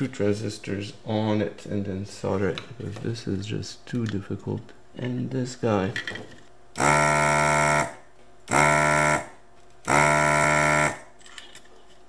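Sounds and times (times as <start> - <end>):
vacuum pump buzzing: 6.7 - 11.2.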